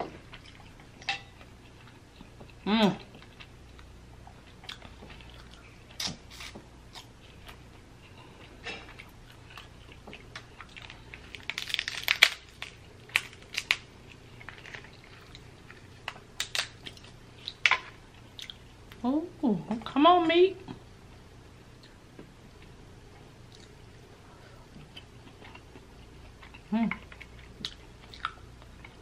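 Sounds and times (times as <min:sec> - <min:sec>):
chewing: 0:00.2 - 0:01.0, 0:01.6 - 0:12.1, 0:14.1 - 0:17.6, 0:24.7 - 0:29.0
crab shell cracking: 0:10.9 - 0:14.9, 0:16.0 - 0:17.8.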